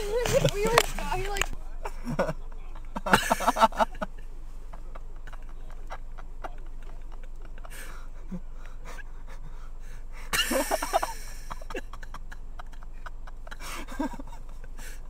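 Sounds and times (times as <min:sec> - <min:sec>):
steady low hum: 0:00.0 - 0:15.0
stifled breathy laughter: 0:04.8 - 0:15.0.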